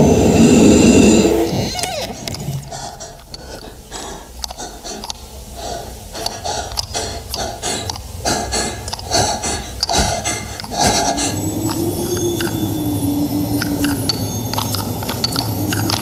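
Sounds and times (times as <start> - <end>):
person breathing heavily: 2.4 - 12.6
small clicks: 4.4 - 5.3, 6.2 - 11.0, 13.5 - 16.0.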